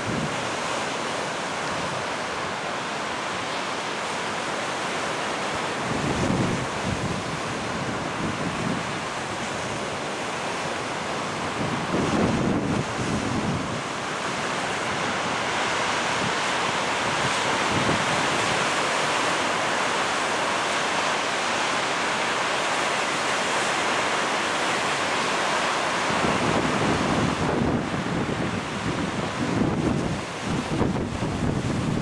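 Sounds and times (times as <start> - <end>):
surf washing up beach: 0.0 - 32.0
wind buffeting microphone: 11.4 - 13.8, 26.1 - 32.0.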